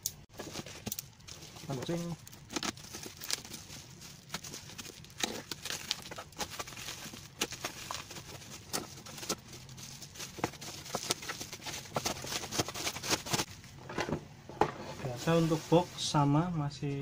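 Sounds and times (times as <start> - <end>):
bubble wrap crinkling: 0.3 - 13.8.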